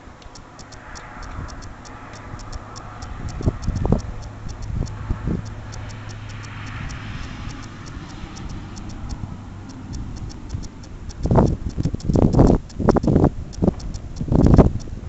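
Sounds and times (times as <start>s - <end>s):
faint even ticking: 0.0s - 15.0s
wind on microphone: 1.2s - 15.0s
flame rumbling in wind: 9.3s - 15.0s.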